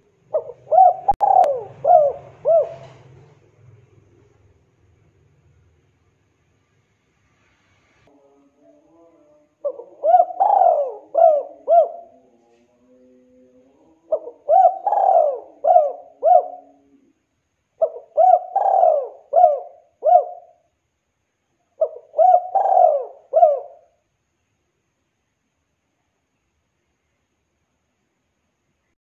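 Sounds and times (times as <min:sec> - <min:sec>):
dove cooing: 0:00.0 - 0:03.4, 0:09.6 - 0:12.4, 0:13.0 - 0:17.2, 0:17.8 - 0:20.6, 0:21.8 - 0:24.0.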